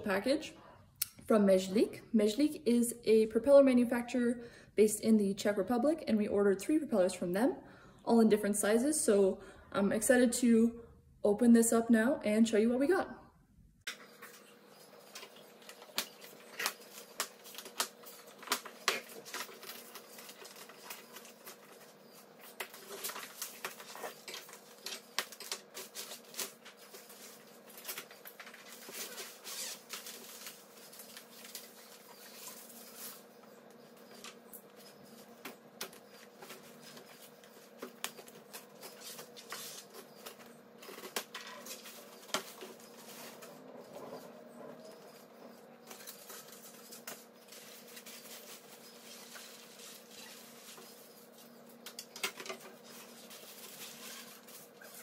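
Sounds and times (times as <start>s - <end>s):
cardboard boxes being unpacked: 15.1s - 33.3s
plastic strapping being cut: 27.9s - 30.2s.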